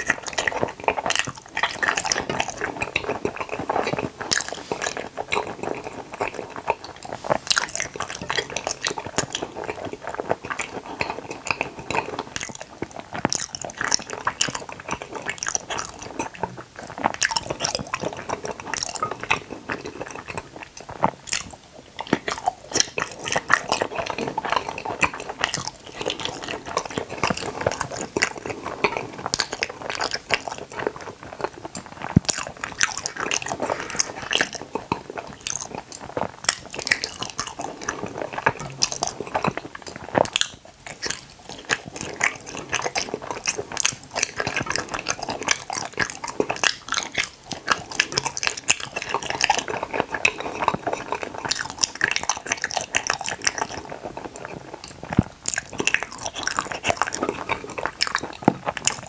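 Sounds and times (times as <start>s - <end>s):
wet chewing of gummy jelly: 0.0s - 59.0s.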